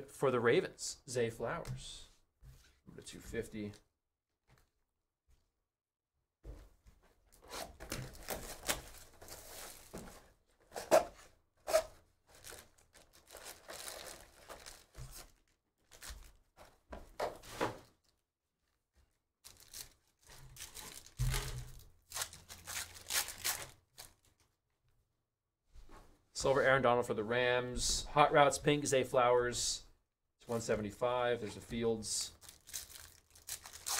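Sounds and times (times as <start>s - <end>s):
foil packs ripping and crinkling: 7.9s - 10.0s, 12.3s - 16.3s, 19.5s - 24.2s, 32.4s - 33.9s.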